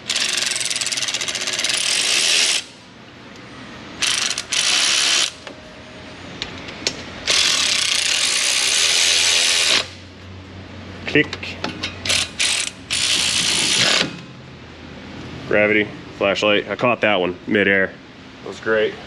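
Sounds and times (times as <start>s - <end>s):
ratchet pawl clicking: 0.1s - 2.7s, 4.0s - 5.4s, 7.3s - 9.9s.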